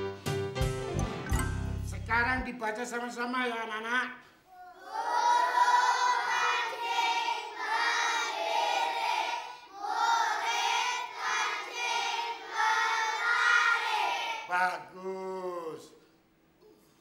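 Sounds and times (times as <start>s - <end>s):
children reading aloud in unison: 4.5s - 14.5s.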